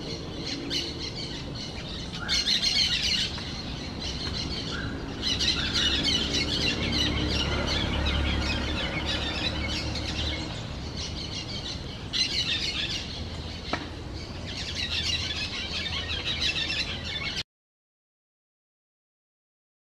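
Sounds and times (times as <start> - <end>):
parakeets chattering: 0.0 - 13.7.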